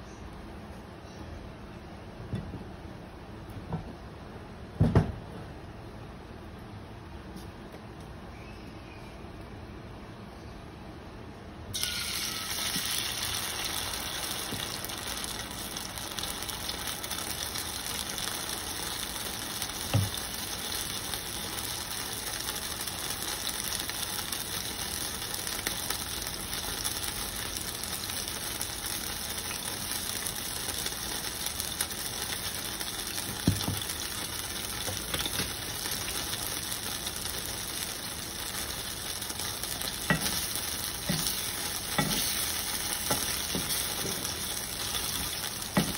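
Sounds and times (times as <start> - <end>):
eggs sizzling in a skillet: 11.7 - 45.9.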